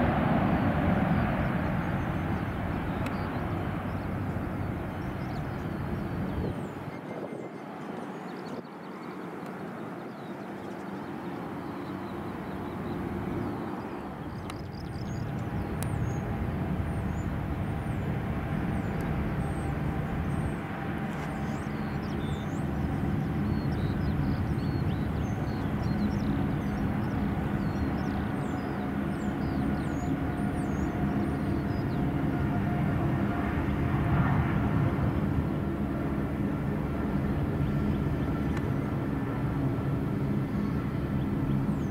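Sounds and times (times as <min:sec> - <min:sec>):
jet engines droning and whining: 0:00.0 - 0:41.9
small birds chirping: 0:00.6 - 0:32.3.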